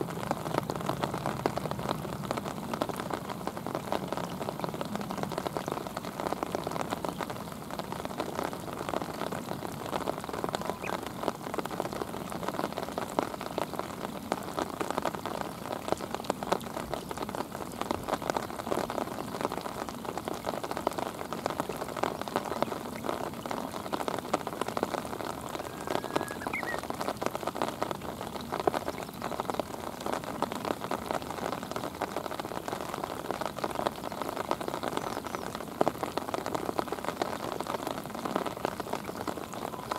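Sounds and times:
rain falling on a river: 0.0s - 39.9s.

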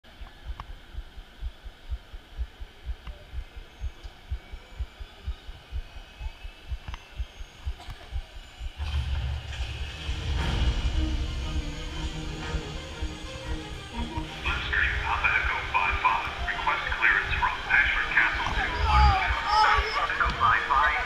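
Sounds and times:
low throbbing pulse: 0.2s - 21.0s
deep rumble: 8.6s - 20.8s.

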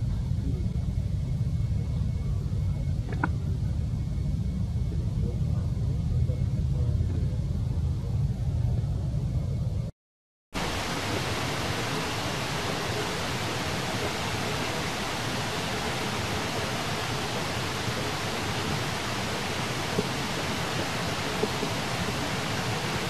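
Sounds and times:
steady even hiss: 10.6s - 23.0s.

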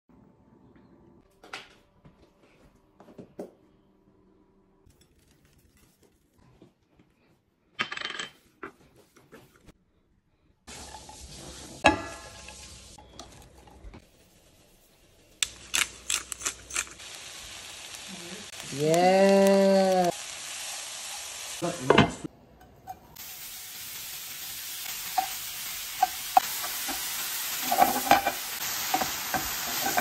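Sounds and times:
dishes clinking: 27.6s - 30.0s.

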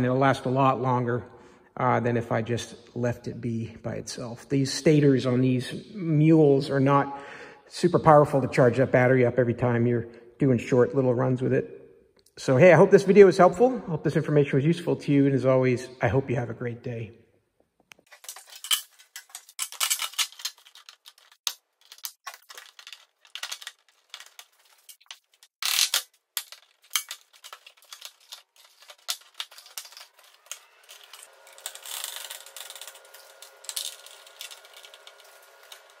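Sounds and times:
plastic panels clicking and rattling: 18.1s - 36.0s.

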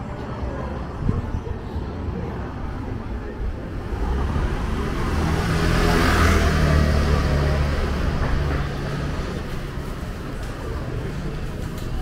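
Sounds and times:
motor scooter passing: 3.7s - 12.0s.

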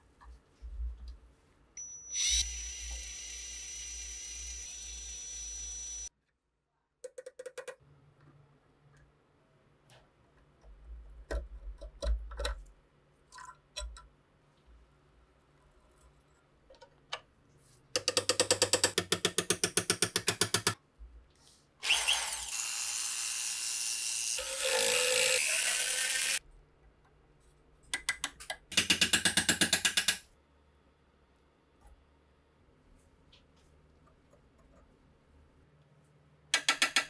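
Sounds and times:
rotary tool grinding metal: 21.8s - 26.4s.

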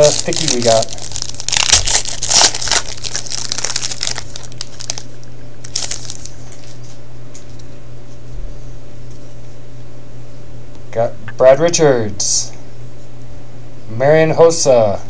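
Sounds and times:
foil wrapper crinkling: 0.0s - 7.0s.

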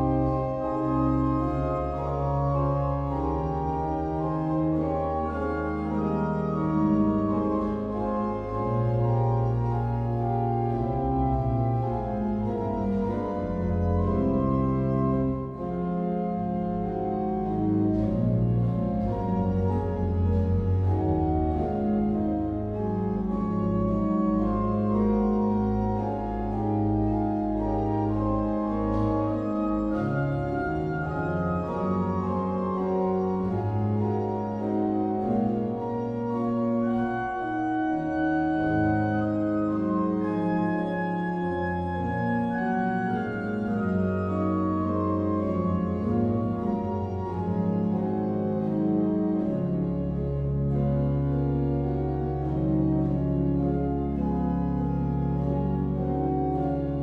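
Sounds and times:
pipe organ playing chords: 0.0s - 57.0s.

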